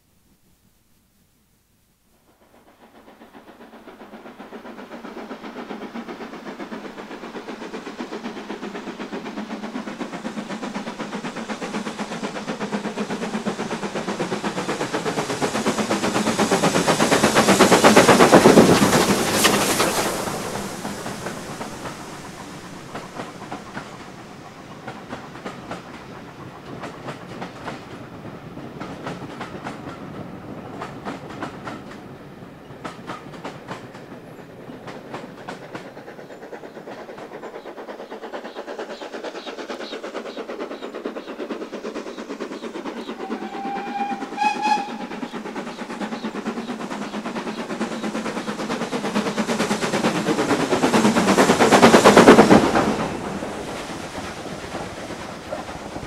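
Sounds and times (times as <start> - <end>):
steam locomotive exhaust: 2.3 - 56.0
train coaches clickety-clack: 2.4 - 56.0
steam whistle: 43.2 - 45.2.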